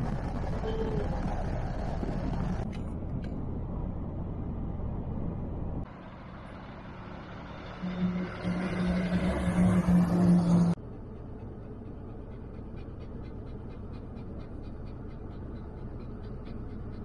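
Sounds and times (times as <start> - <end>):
car interior engine and road noise: 0.0 - 17.0
truck diesel engine droning: 5.8 - 17.0.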